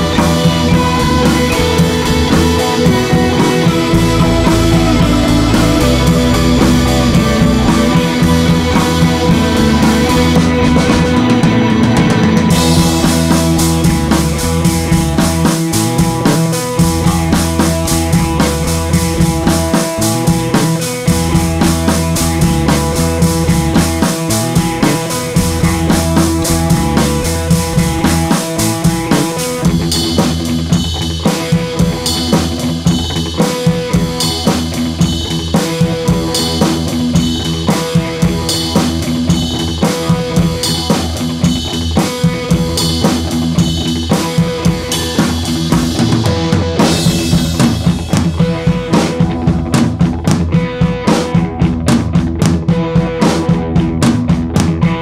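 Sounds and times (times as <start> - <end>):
background music: 0.0 - 30.2
drum kit beat: 0.0 - 55.0.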